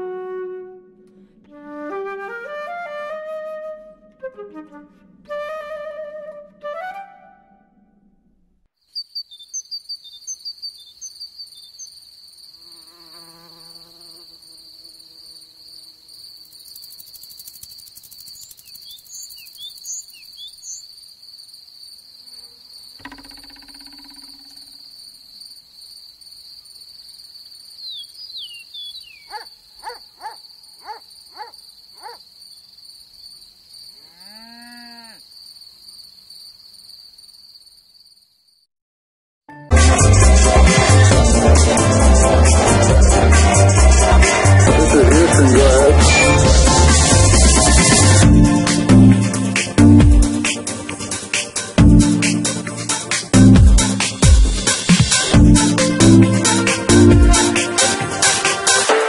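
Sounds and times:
cricket trilling: 8.8s - 38.7s
brief chirps and rising calls: 8.9s - 12.0s, 17.6s - 20.9s, 27.8s - 32.2s.

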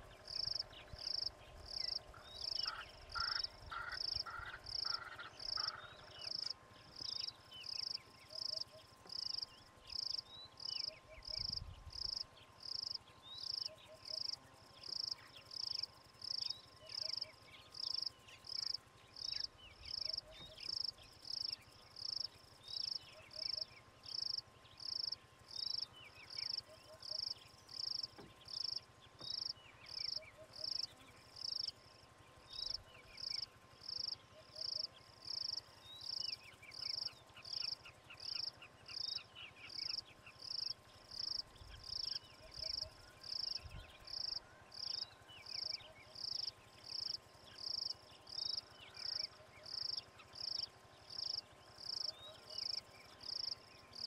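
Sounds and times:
birds calling: 0.0s - 9.2s
insect chirping: 0.0s - 54.0s.

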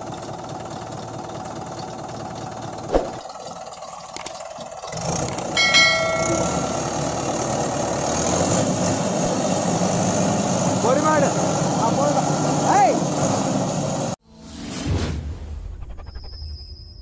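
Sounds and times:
engine knock: 0.0s - 8.0s
tractor diesel engine running: 0.0s - 14.1s
ringing bell sound effect: 5.6s - 7.4s.

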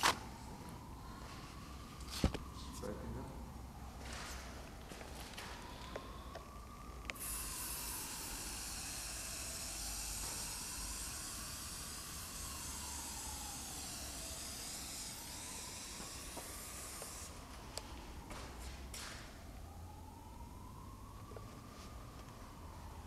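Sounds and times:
aerosol spray hissing: 7.2s - 17.4s.

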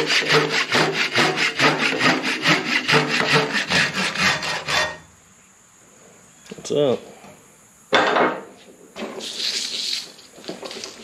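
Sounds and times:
pull saw cutting wood: 0.0s - 5.0s.

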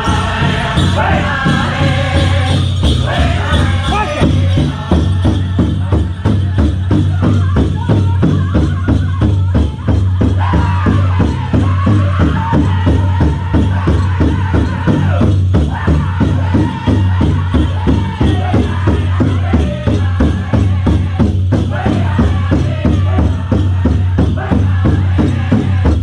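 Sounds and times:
big drum beating fast: 0.0s - 26.0s
high voices singing: 0.0s - 26.0s.

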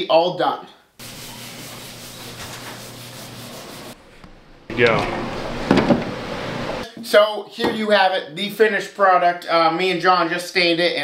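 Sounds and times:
cloth rubbing on wood: 1.0s - 4.0s.

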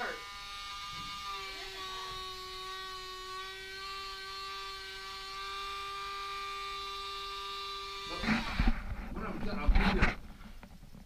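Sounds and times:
rotary nail grinder whining: 0.0s - 8.8s.

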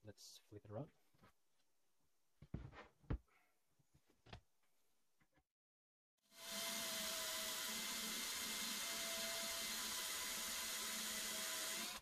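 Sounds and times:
cordless drill motor whine: 6.3s - 12.0s
drill bit cutting metal: 6.3s - 12.0s.

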